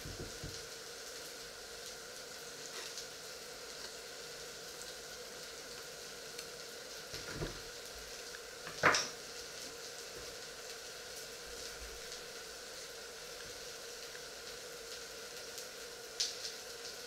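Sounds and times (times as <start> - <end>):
soft knock: 0.1 - 0.6.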